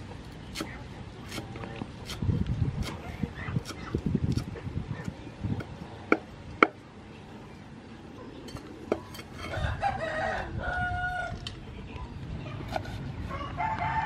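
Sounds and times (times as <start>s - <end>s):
cleaver chopping on wooden board: 5.6s - 6.8s
rooster crowing: 9.4s - 11.4s, 13.3s - 14.0s.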